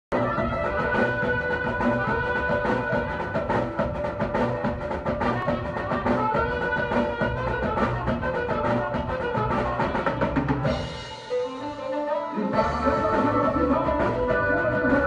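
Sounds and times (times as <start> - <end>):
drums keeping steady beat: 0.1 - 15.0
folk band playing: 0.1 - 15.0.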